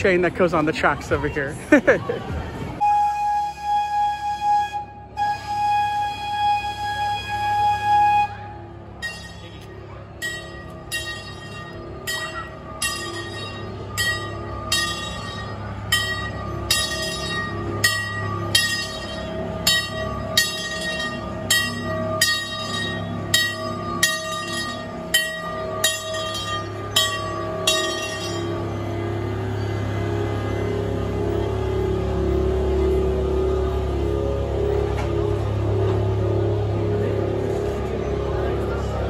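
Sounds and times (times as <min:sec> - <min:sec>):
train bell ringing: 0:08.8 - 0:39.0.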